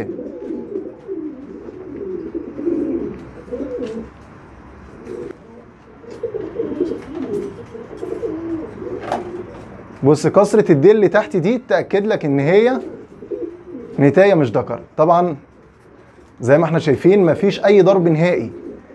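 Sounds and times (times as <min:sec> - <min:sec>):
pigeon cooing: 0:00.0 - 0:04.2, 0:04.9 - 0:09.9, 0:12.4 - 0:14.3, 0:18.0 - 0:18.9.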